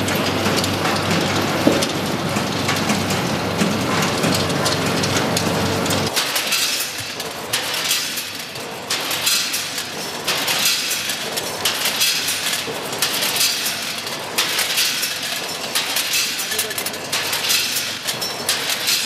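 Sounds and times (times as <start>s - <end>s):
product clattering through weigher: 6.1s - 19.0s.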